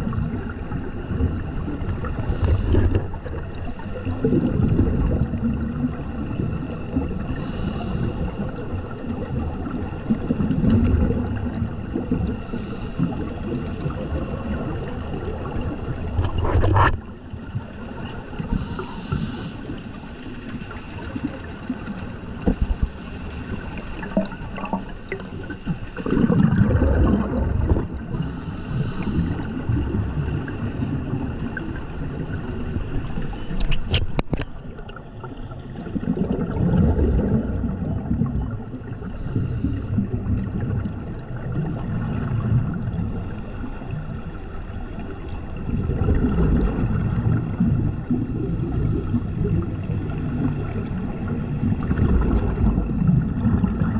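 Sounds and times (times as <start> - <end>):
underwater regulator bubbles: 0.0 - 20.0, 20.7 - 35.0, 35.7 - 53.9
inhalation hiss: 0.8 - 3.0, 7.2 - 8.5, 11.9 - 13.4, 18.5 - 19.8, 28.1 - 29.7, 38.8 - 40.1, 44.2 - 45.5, 47.8 - 51.1.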